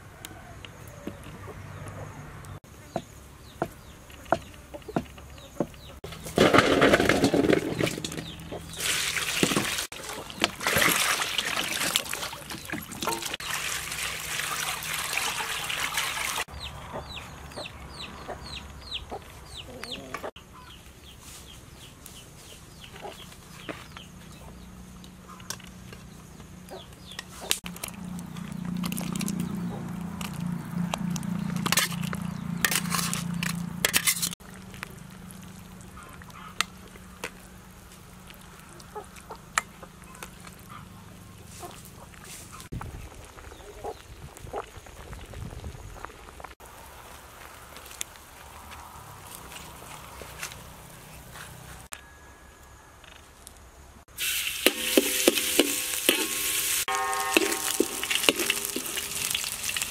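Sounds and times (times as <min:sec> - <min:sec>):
chickens clucking: 0:16.6 - 0:20.8, 0:26.7 - 0:27.6, 0:38.6 - 0:42.7.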